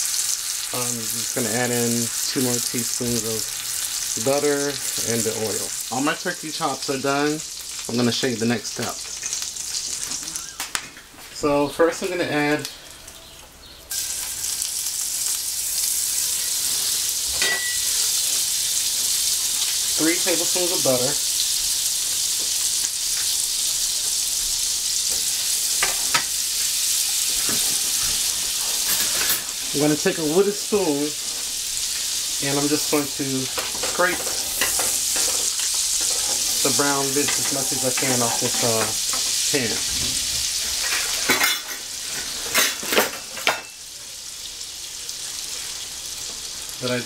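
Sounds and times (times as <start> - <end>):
butter sizzling in a skillet: 0.0 - 10.9, 11.8 - 47.0
wooden spoon scraping a pan: 32.7 - 41.4.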